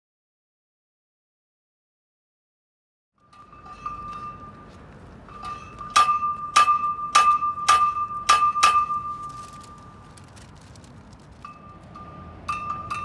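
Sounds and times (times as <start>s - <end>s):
steady ringing tone: 3.2s - 10.0s.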